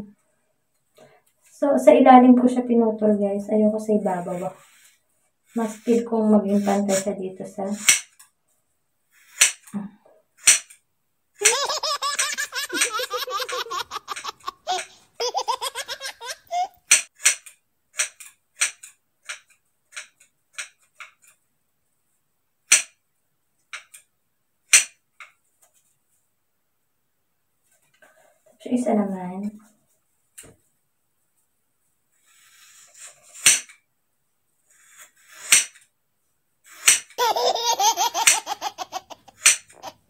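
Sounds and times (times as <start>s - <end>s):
scissors snipping hair: 7.8s - 8.1s, 11.4s - 14.9s, 16.9s - 17.4s, 39.4s - 39.7s
burst of laughter: 11.4s - 16.7s, 37.2s - 40.0s.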